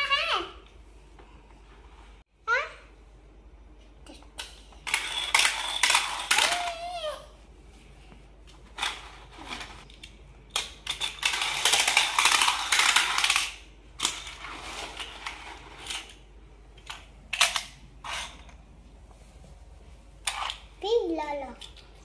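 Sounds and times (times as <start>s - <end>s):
toy cars rattling down plastic track: 4.8s - 7.0s, 8.8s - 9.8s, 10.5s - 16.2s.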